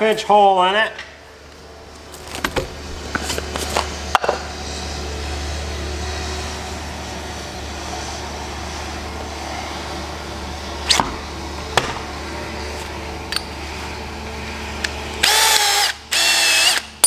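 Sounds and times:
handling clicks and knocks: 0:01.9 - 0:04.4
cordless drill boring plastic: 0:15.2 - 0:17.0.

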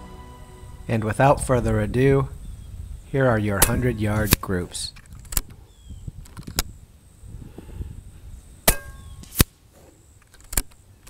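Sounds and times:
air rifle cracks and clicks: 0:03.6 - 0:05.6, 0:10.2 - 0:10.8.

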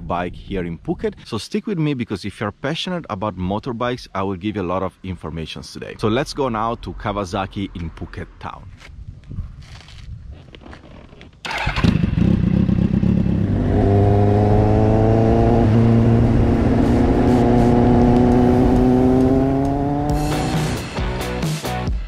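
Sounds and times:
motorcycle engine pulling away: 0:11.4 - 0:20.8.

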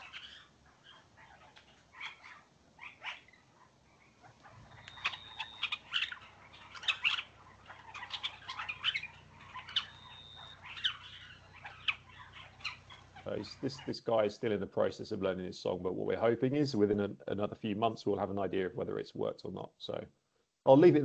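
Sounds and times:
bird chirping and squeaking: 0:00.0 - 0:14.0
bird high whistle: 0:04.7 - 0:06.2, 0:08.8 - 0:11.9.

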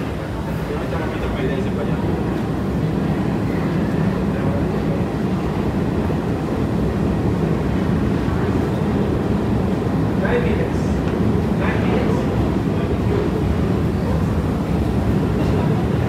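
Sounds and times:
subway train humming: 0:00.0 - 0:16.0.

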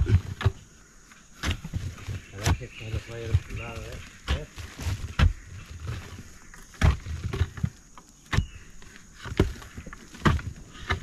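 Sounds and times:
soil scraping: 0:00.0 - 0:11.0
tool thudding into earth: 0:01.4 - 0:06.1.

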